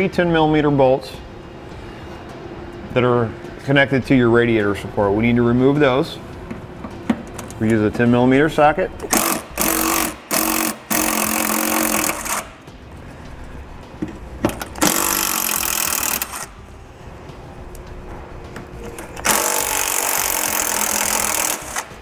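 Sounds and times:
cordless power tool running: 9.0s - 12.5s, 14.8s - 16.5s, 19.2s - 22.0s.

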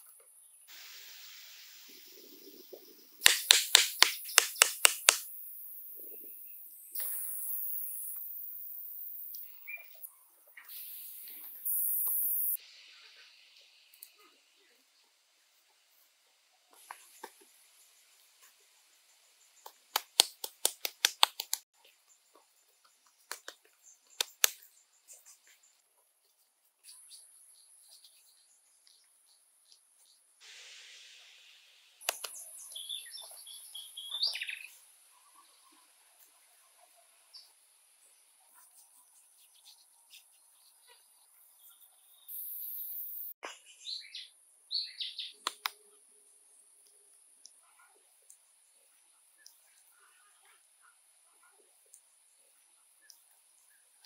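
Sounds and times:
loud hissing buzz: 0.7s - 3.4s, 30.4s - 32.0s
hands slapping wet mud: 3.2s - 5.2s, 19.9s - 21.6s, 24.2s - 24.6s
sharp clicks: 3.2s - 5.3s, 19.6s - 21.6s, 24.2s - 24.6s, 32.0s - 32.4s
bird chirps: 9.2s - 12.6s, 32.0s - 35.8s, 39.4s - 45.4s.

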